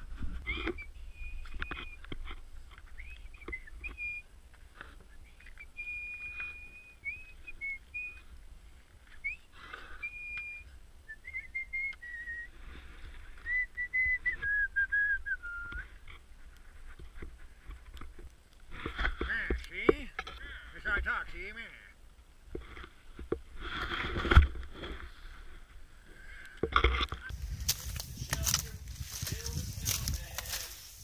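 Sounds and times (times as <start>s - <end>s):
person whistling a tune: 3.0s - 4.2s, 5.6s - 8.2s, 9.2s - 12.5s, 13.4s - 15.8s
footsteps crunching in snow: 27.3s - 31.0s.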